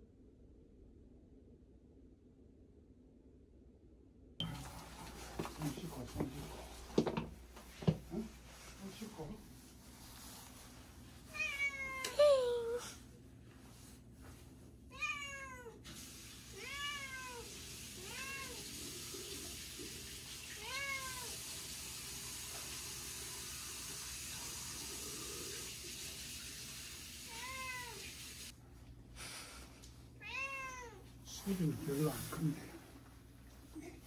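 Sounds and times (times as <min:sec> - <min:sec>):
cat meowing: 0:11.3 - 0:12.8, 0:14.9 - 0:15.8, 0:16.5 - 0:18.7, 0:20.6 - 0:21.4, 0:27.3 - 0:28.1, 0:30.2 - 0:31.0.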